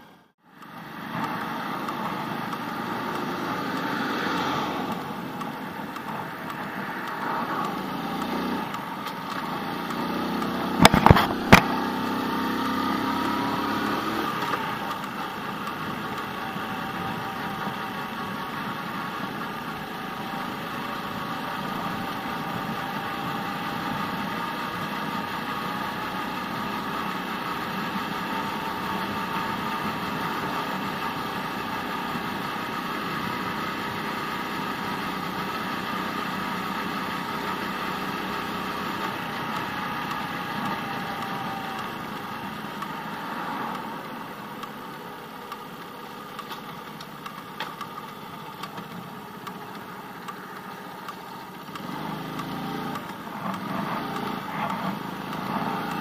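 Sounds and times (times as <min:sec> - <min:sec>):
motorcycle engine running: 0:00.0 - 0:56.0
road and wind noise: 0:00.0 - 0:56.0
sharp clicks: 0:00.5 - 0:18.3, 0:32.8 - 0:56.0.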